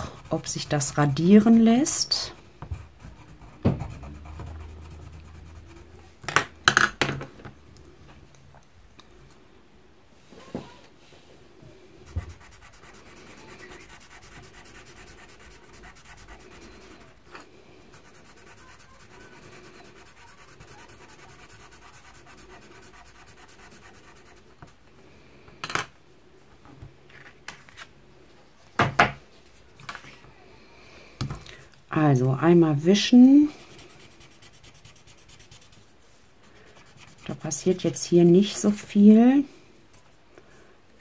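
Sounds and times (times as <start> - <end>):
pencil scratching on paper: 0.0 - 6.1, 12.1 - 17.2, 17.9 - 24.6, 33.5 - 38.9.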